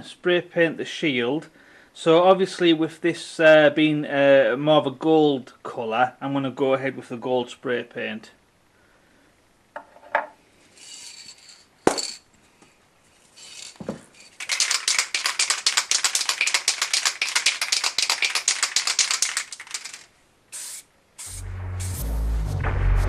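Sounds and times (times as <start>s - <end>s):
spray can ball rattling: 10.8s - 12.2s, 13.3s - 21.4s
short hisses: 20.5s - 22.0s.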